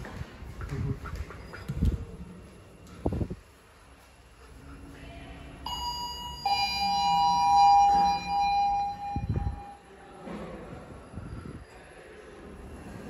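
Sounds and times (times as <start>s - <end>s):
elevator two-note chime: 5.7s - 9.8s.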